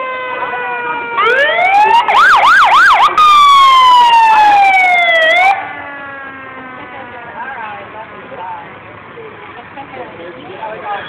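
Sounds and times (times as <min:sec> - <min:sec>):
emergency vehicle siren: 0:00.0 - 0:08.3.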